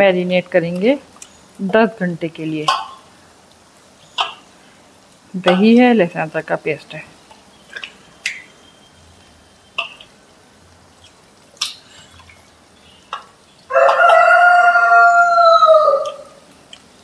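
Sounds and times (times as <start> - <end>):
rooster crowing: 13.7 - 16.4.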